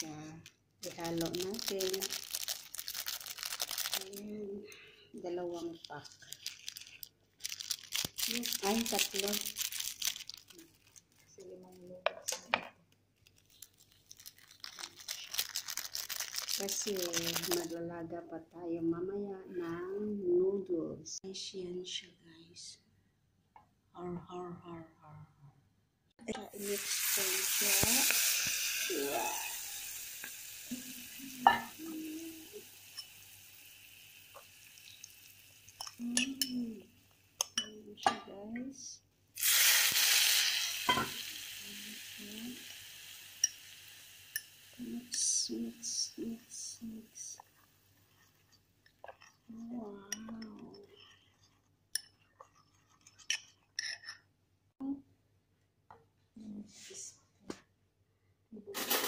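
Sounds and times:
hot oil sizzling: 0:26.5 - 0:37.4, 0:39.4 - 0:48.1
spoon scraping bowl: 0:29.0 - 0:29.7, 0:47.4 - 0:54.3.

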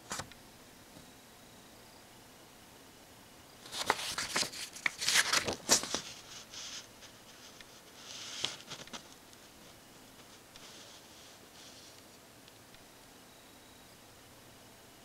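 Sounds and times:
paper pages rustling: 0:03.6 - 0:12.0.

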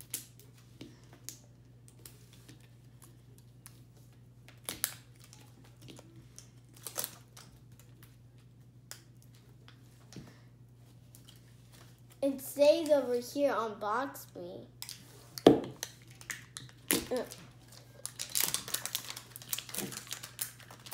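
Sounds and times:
faint low hum: 0:00.0 - 0:20.9
plastic wrapping crinkling and tearing: 0:01.3 - 0:08.5, 0:15.8 - 0:20.9.

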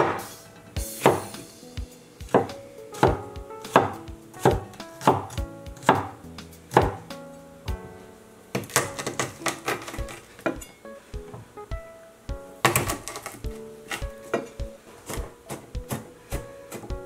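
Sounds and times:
cleaver chopping on wooden board: 0:02.3 - 0:06.1, 0:06.7 - 0:07.0, 0:12.7 - 0:13.4.

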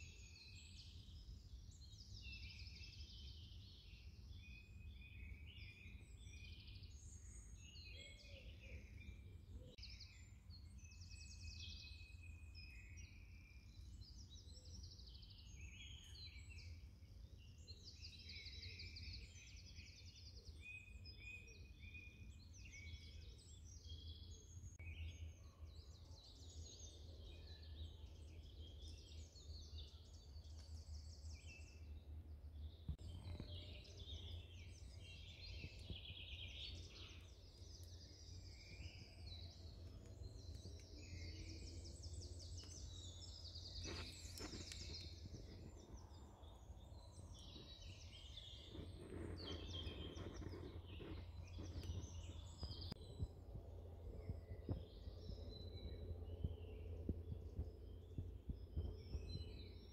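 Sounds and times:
faint low rumble: 0:24.3 - 0:59.9
birds chirping and trilling: 0:32.6 - 0:59.9.

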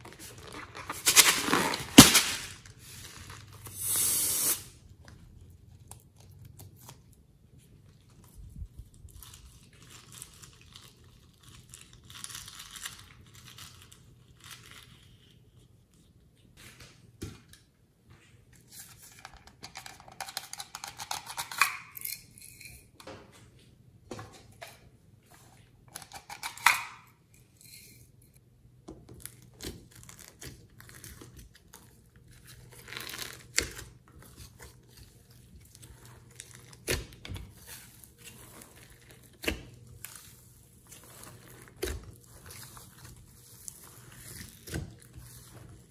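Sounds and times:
rustling and crinkling: 0:00.0 - 0:03.7, 0:29.2 - 0:45.9.

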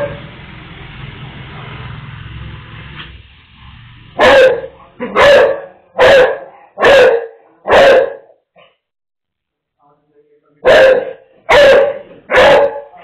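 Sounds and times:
dog barking: 0:04.2 - 0:08.8, 0:10.6 - 0:13.0.

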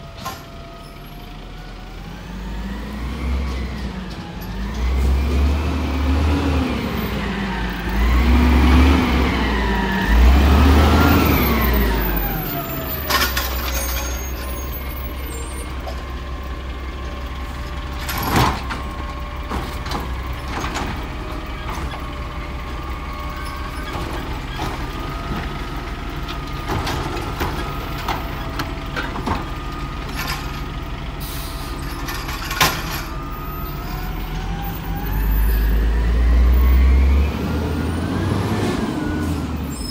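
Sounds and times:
diesel engine revving: 0:01.0 - 0:39.9.

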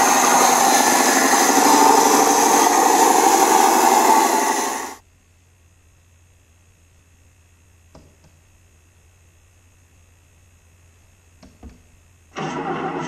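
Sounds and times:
loud engine-like sound: 0:00.0 - 0:05.0, 0:12.4 - 0:13.0.

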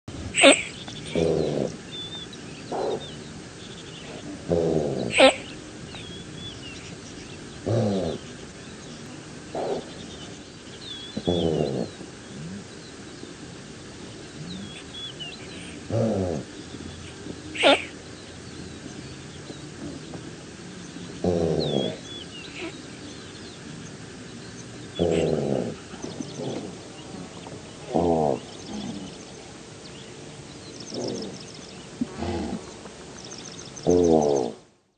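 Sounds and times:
antelope hoarse calls: 0:00.3 - 0:13.1, 0:13.8 - 0:19.1, 0:21.0 - 0:23.6, 0:24.8 - 0:34.7
antelope bleating grunts: 0:00.4 - 0:01.8, 0:04.1 - 0:05.6, 0:17.5 - 0:18.0, 0:21.2 - 0:22.8, 0:25.0 - 0:26.8, 0:32.0 - 0:32.6.

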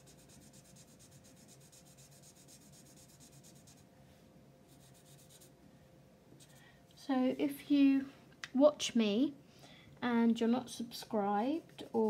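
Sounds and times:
marker scratching on paper: 0:00.0 - 0:03.8, 0:04.7 - 0:05.5.

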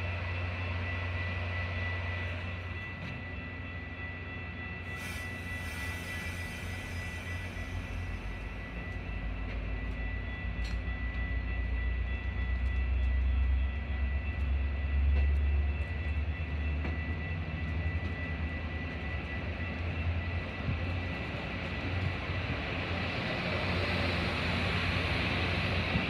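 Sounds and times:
thin high whine: 0:00.0 - 0:17.4
train rumbling past: 0:00.0 - 0:26.0.

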